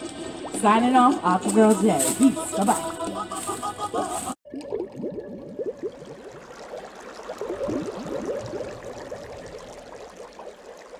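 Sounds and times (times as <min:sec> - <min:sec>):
water trickling and gurgling: 0:00.0 - 0:02.2, 0:04.4 - 0:10.9.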